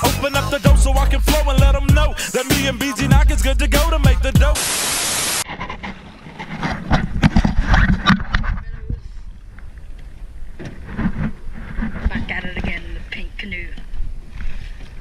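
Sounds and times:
hip-hop music: 0.0 - 5.4
loud static: 4.4 - 5.4.

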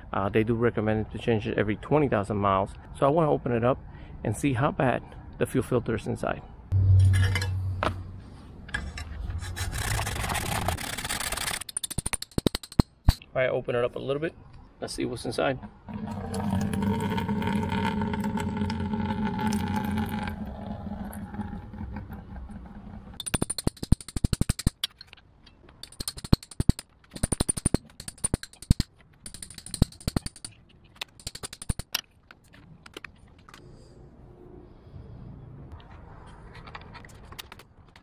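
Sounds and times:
fuel pouring into plastic bucket: 15.9 - 22.0.

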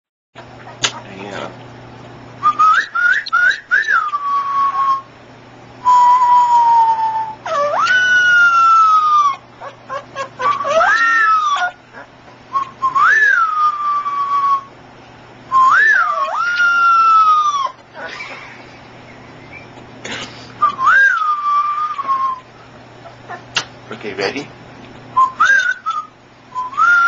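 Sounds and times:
puppy howling: 5.9 - 14.7, 15.5 - 18.2, 20.8 - 22.4.

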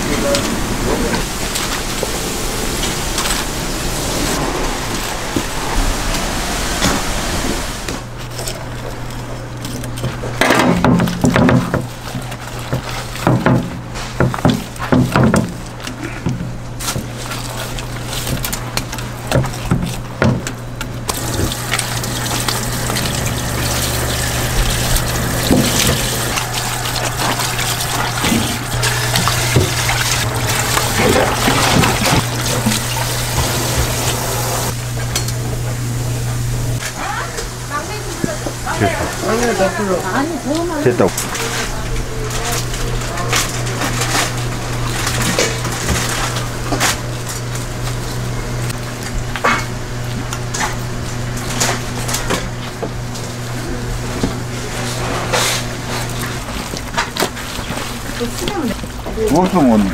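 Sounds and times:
steady hiss: 0.0 - 8.1
low steady hum: 0.0 - 59.9
utensils knocking and clattering: 18.3 - 34.3.

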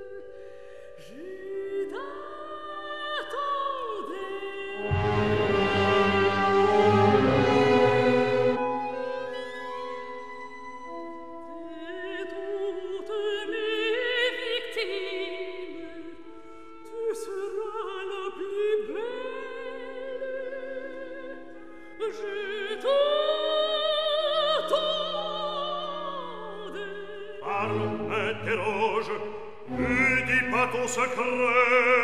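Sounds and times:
woman singing opera: 0.0 - 32.0
sustained orchestral chords: 4.8 - 9.3, 27.4 - 31.4.

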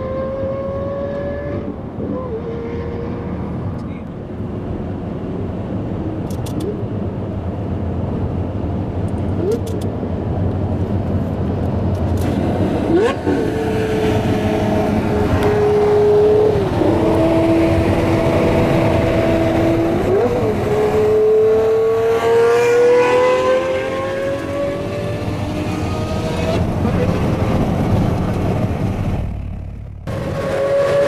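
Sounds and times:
sports car engine revving: 0.0 - 3.7, 12.2 - 29.2
road and wind noise: 0.0 - 31.0.

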